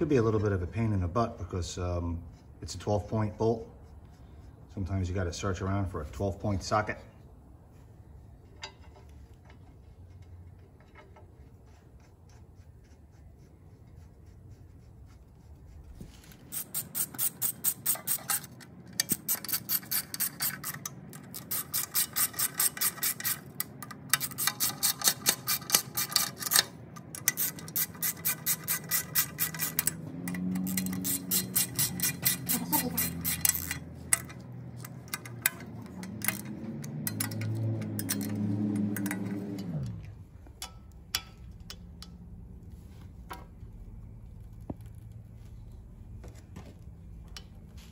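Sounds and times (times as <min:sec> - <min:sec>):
socket ratchet clicking: 0:16.5 - 0:39.4.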